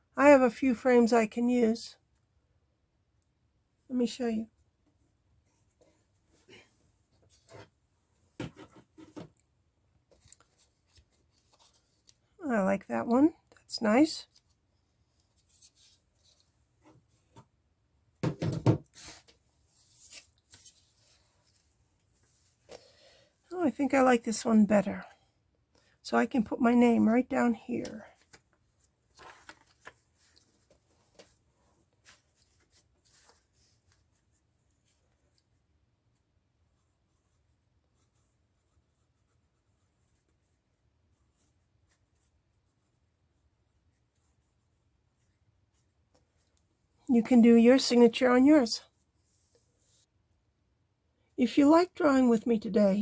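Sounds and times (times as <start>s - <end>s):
picture frame knocking on table: 18.2s - 18.9s
pencil scratching on paper: 36.6s - 46.0s.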